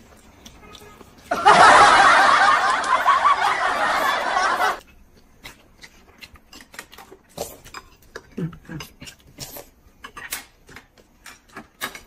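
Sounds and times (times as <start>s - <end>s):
laughter sound effect: 1.3s - 4.8s
faint eating and utensil clicks: 4.8s - 12.0s.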